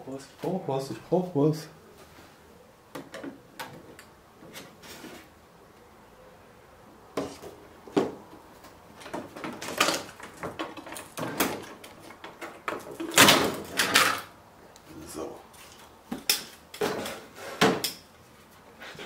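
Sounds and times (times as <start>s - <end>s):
scraping and rustling of plastic parts: 8.6s - 14.3s.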